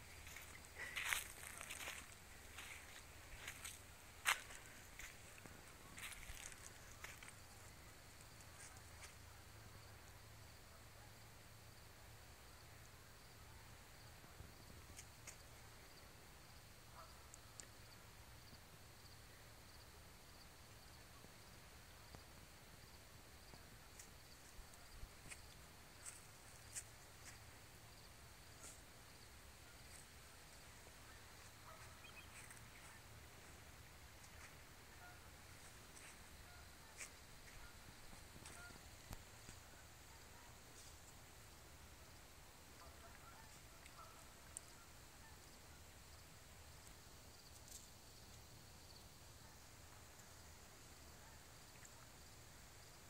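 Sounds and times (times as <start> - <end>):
faint ticks: 14.9 - 15.7, 16.9 - 17.9.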